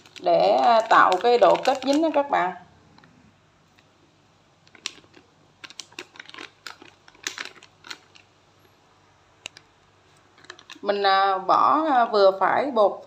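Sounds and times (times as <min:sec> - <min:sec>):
plastic packet crinkling: 0:00.0 - 0:02.5, 0:04.6 - 0:08.4, 0:09.4 - 0:11.0.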